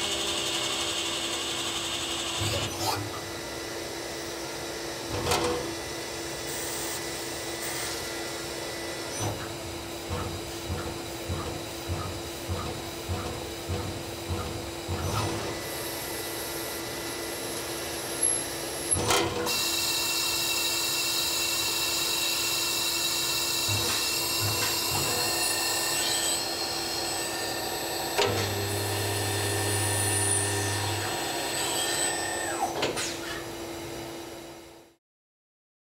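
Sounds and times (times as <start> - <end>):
machine hum: 0.0 - 19.4
spindle and cutting whines: 0.0 - 33.5.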